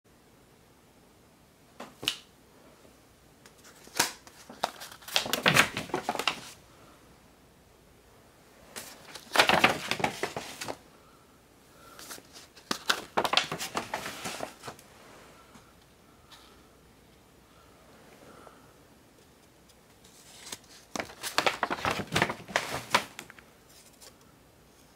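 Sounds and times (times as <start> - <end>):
paper sleeves rustling: 3.6 - 6.6, 8.7 - 10.8, 11.8 - 15.5, 19.9 - 24.2.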